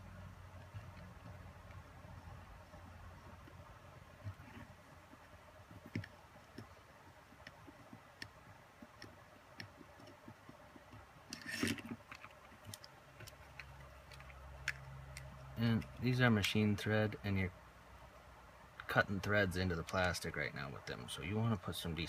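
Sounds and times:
parts clattering: 8.8 - 16.6.

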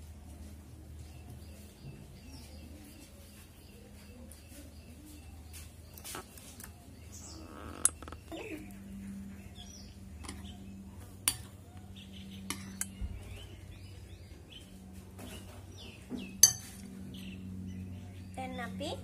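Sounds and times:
metal spoon clinking on glass bowl: 16.4 - 16.9.

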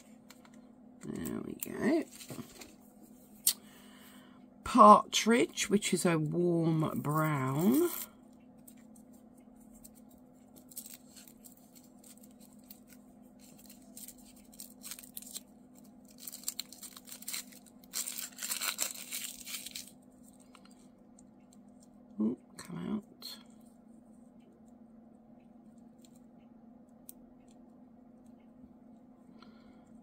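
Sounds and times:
paper wrapping crinkling and tearing: 9.8 - 20.0.

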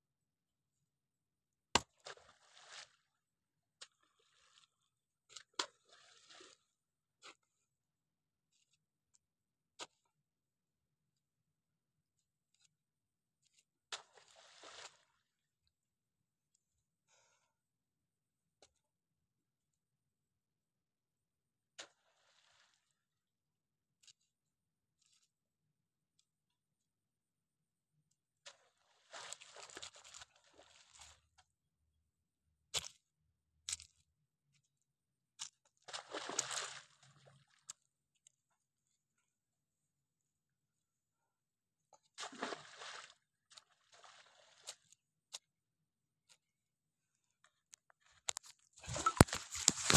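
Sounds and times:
spade chopping into wet mud: 1.8 - 2.0
spade digging wet mud: 48.4 - 49.9.

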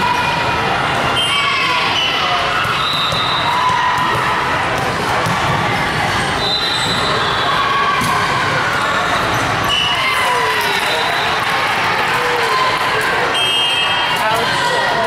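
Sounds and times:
balls bouncing: 2.5 - 6.1.

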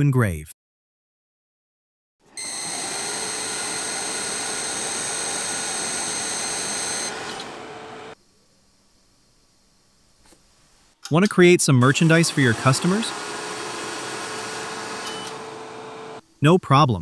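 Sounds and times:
high steady whining tones: 2.3 - 8.2, 11.8 - 16.2
laser engraver hiss: 2.4 - 8.2, 11.8 - 16.5.

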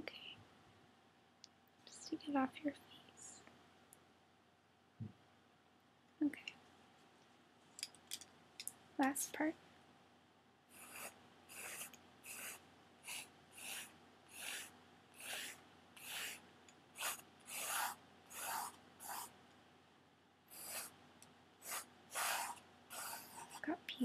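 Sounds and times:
pencil strokes on paper: 10.7 - 19.4, 20.5 - 21.0, 21.6 - 24.0.

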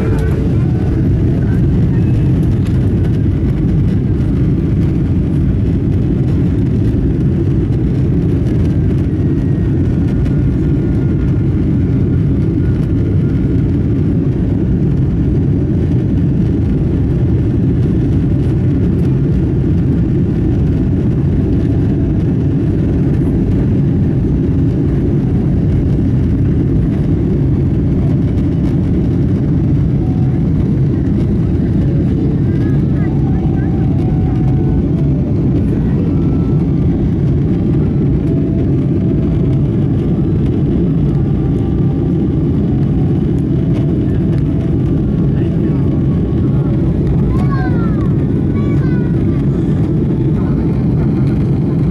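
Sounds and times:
jet engines deep rumble: 0.0 - 51.9.

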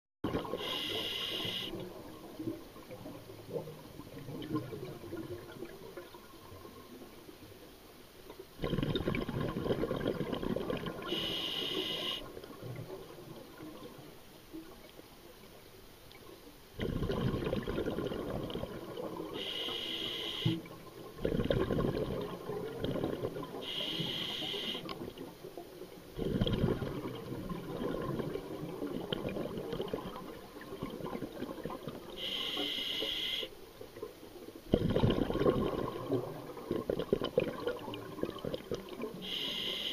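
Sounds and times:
exhaled bubbles underwater: 0.2 - 7.6, 8.5 - 14.9, 16.8 - 39.7
hissing regulator inhalations: 0.6 - 1.8, 11.1 - 12.3, 19.4 - 20.6, 23.6 - 25.0, 32.2 - 33.5, 39.2 - 39.9.

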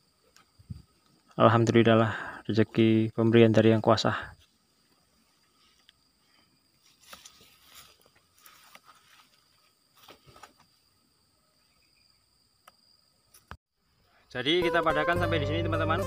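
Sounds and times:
faint rustles: 4.3 - 10.9.

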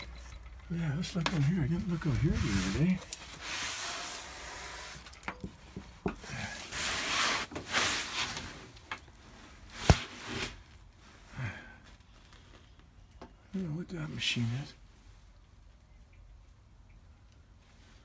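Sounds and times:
rustling and scraping of debris: 0.0 - 13.2.

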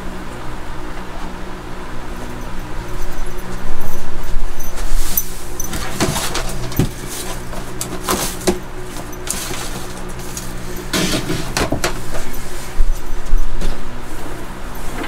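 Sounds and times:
steady low hum: 0.0 - 15.0
coconut husk rustling by hand: 3.1 - 15.0.

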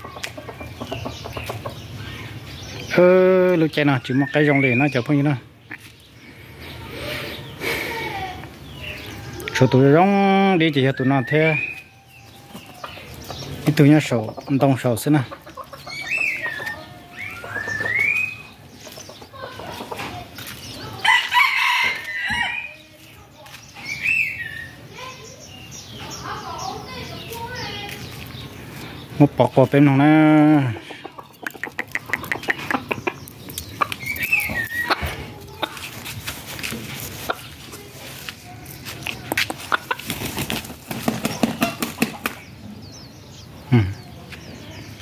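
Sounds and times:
rooster clucking: 14.2 - 22.5, 30.4 - 36.1, 39.2 - 42.4
rooster crowing: 21.0 - 22.7
wings flapping: 39.5 - 42.4.

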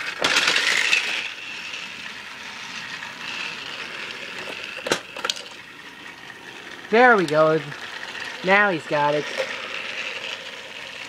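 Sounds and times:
toy train motors whirring: 0.0 - 11.0
sharp clicks and knocks: 4.4 - 5.6.

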